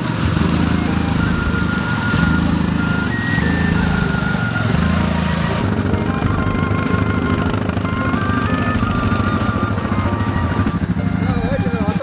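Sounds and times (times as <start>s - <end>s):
background music: 0.0s - 12.0s
quad bike engines running: 0.0s - 12.0s.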